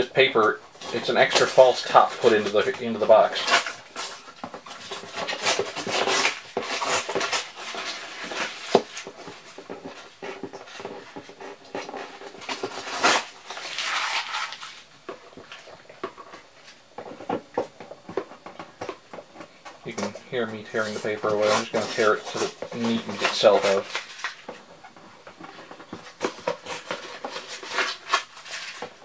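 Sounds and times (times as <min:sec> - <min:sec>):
paper tearing: 0:00.8 - 0:09.4, 0:11.8 - 0:14.9, 0:19.9 - 0:24.4, 0:26.2 - 0:29.0.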